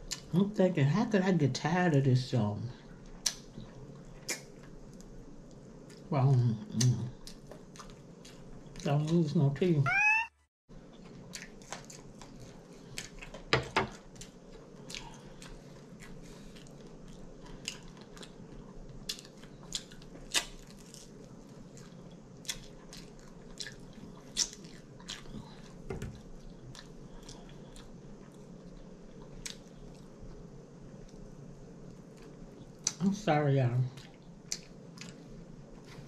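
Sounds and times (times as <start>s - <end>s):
person chewing crunchy chicken: 6.7s - 9.2s, 10.9s - 30.2s, 34.0s - 36.0s.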